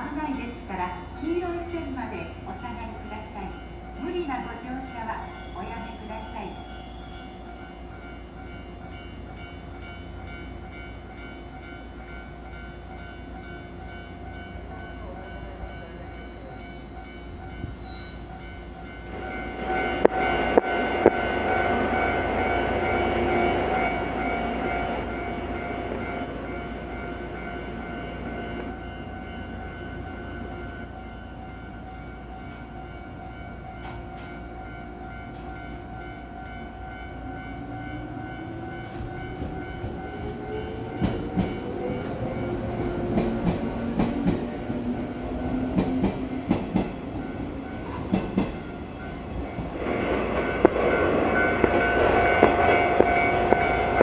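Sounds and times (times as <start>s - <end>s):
electric train hum: 0.0s - 54.0s
train rumble pulling out: 32.4s - 54.0s.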